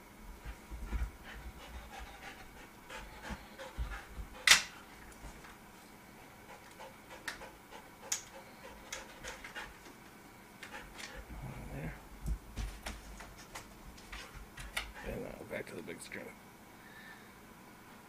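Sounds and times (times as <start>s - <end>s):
dog panting: 0.4s - 5.5s, 6.2s - 10.0s, 10.6s - 11.4s, 13.2s - 15.4s.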